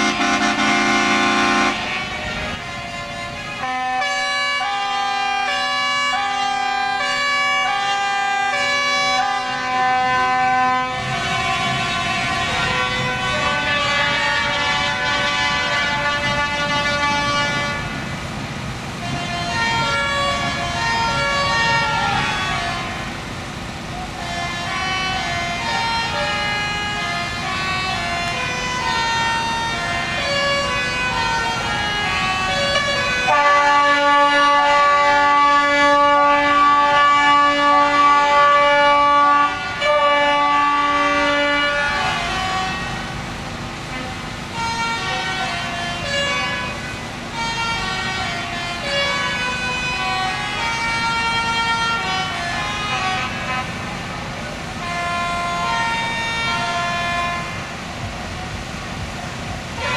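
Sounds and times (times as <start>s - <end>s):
truck air horns: 0.0s - 59.9s.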